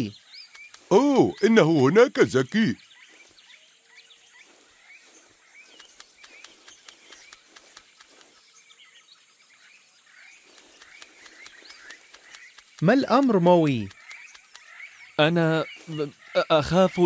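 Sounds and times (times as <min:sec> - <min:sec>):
bird chirps: 0:00.0 - 0:17.0
light clicks: 0:05.7 - 0:08.4, 0:10.5 - 0:12.9.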